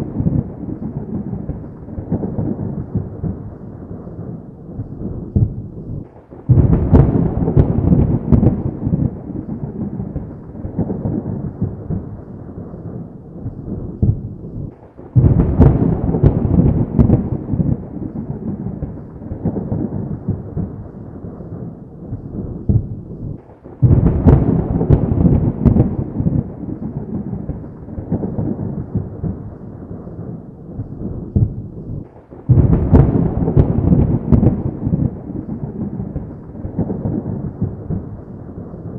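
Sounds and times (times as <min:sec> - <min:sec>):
thunder cracks and rumbles: 0:00.0 - 0:38.9.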